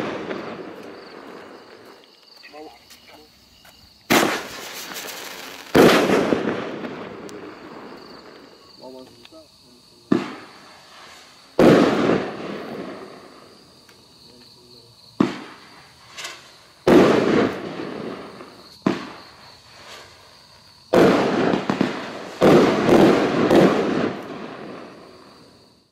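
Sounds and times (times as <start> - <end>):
loud aerial firework bangs: 0.0 - 2.0, 4.0 - 9.0, 10.0 - 13.7, 15.2 - 20.2, 20.9 - 25.5
fireworks launch cracks: 0.0 - 14.4, 15.2 - 25.6.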